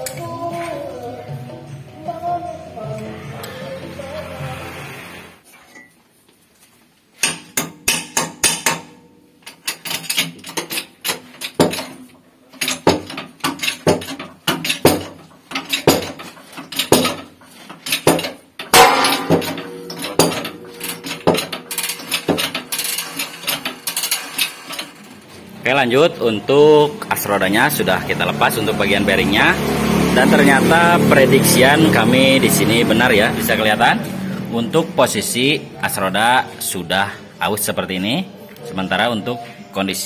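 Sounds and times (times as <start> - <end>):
hydraulic press metal clanks: 7.2 - 25.4.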